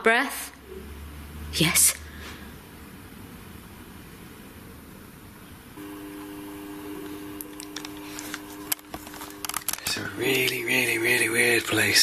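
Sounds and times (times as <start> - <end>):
faint room tone hiss: 0.0 - 12.0
low hum of held tones: 5.5 - 11.7.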